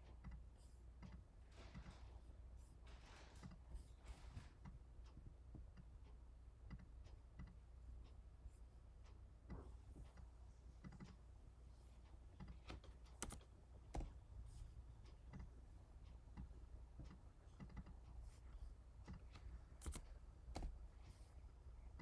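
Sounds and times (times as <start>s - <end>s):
low steady hum: 0.0s - 22.0s
keyboard and mouse clicks: 6.6s - 7.6s, 9.4s - 11.2s, 12.2s - 21.3s.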